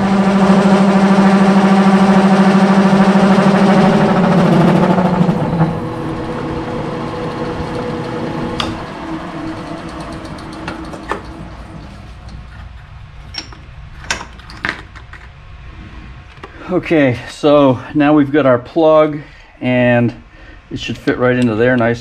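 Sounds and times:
metal lathe running: 0.0s - 12.0s
sharp clicks and knocks: 8.5s - 12.6s.

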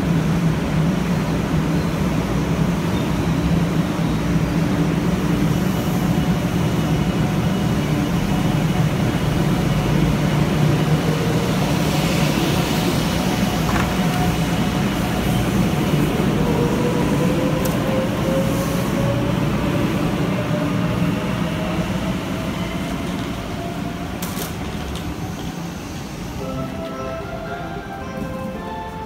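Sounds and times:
train rumbling on rails: 0.0s - 29.0s.

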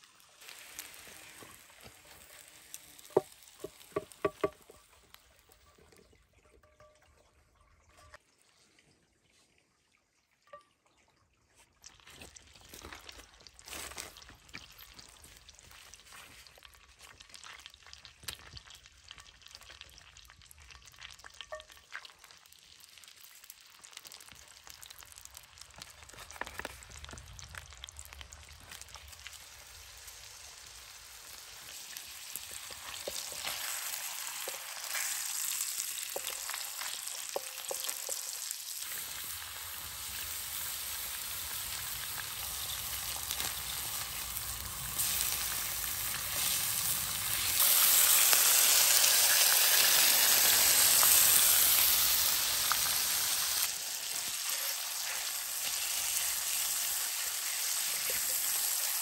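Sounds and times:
meat sizzling in a pan: 0.0s - 5.8s, 12.8s - 59.0s
fat popping: 3.0s - 4.9s.

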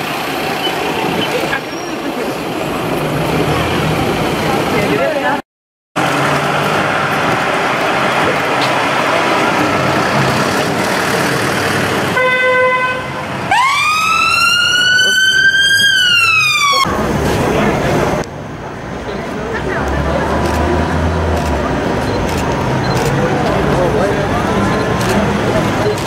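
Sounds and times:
busy street traffic: 0.0s - 5.4s, 6.0s - 26.0s
car horn blast: 12.2s - 13.3s
siren wail: 13.5s - 16.9s.

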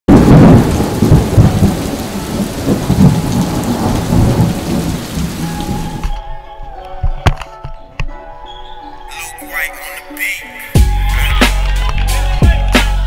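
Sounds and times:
rolling thunder: 0.1s - 6.0s
rain: 0.1s - 6.2s.

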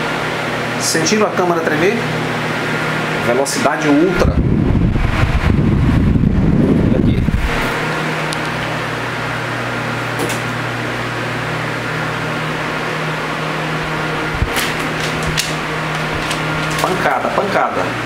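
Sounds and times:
table fan running: 0.0s - 18.0s
paper leaflet flapping: 14.4s - 17.0s.

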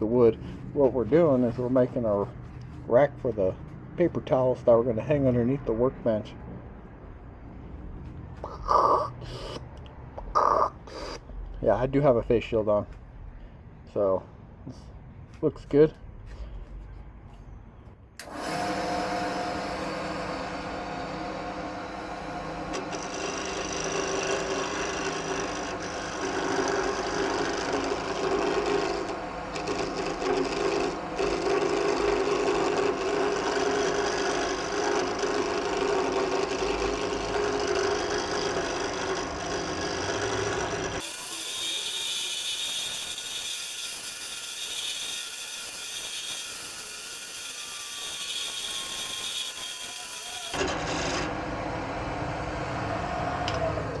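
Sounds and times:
turning tool scraping wood: 18.2s - 43.6s
wood lathe motor hum: 18.2s - 54.0s.

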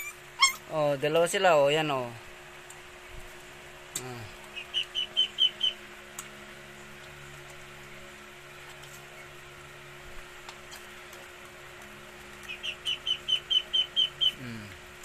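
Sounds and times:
faint background hum: 0.0s - 15.0s
bird chirping: 4.6s - 5.8s, 12.4s - 14.4s.

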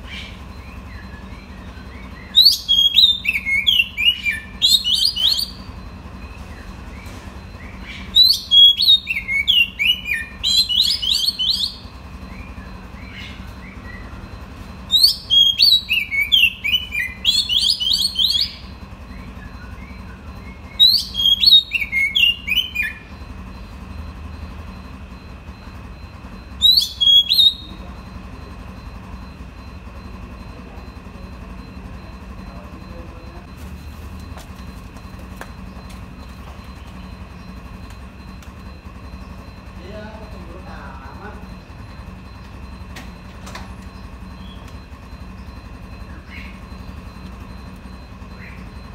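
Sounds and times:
bird singing whistled notes: 0.0s - 23.6s, 26.0s - 28.0s, 43.8s - 47.2s.

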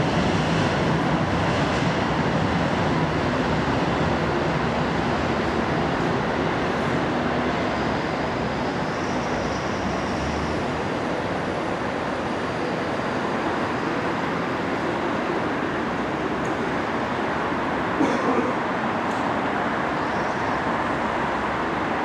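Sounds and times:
train rumbling through station: 0.0s - 22.0s.

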